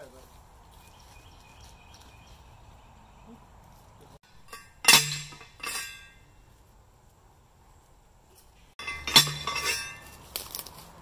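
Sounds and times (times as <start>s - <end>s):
post driver clanking on metal post: 4.3s - 6.2s, 8.8s - 10.1s.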